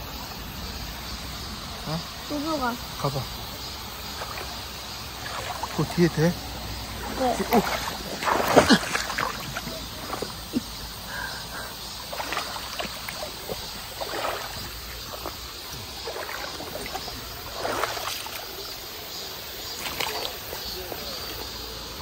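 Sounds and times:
stream trickling over rock: 0.1s - 22.0s
splashes and knocks from wading: 4.0s - 11.0s, 11.8s - 21.4s.

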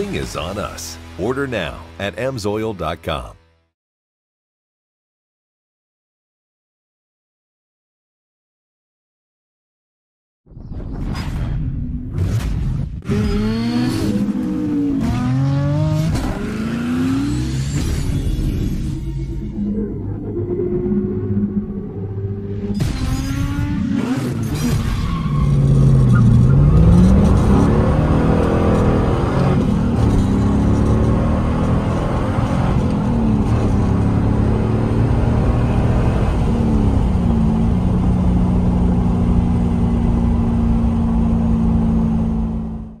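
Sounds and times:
car engine revving: 13.0s - 19.6s, 20.9s - 43.0s.

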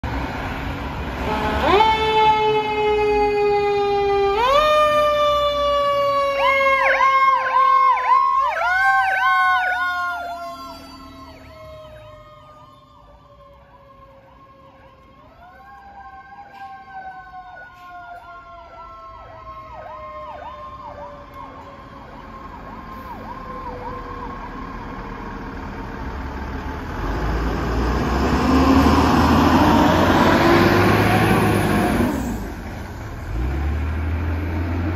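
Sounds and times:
fire engine diesel engine: 0.0s - 34.9s
electronic siren sweeping: 1.3s - 15.0s.

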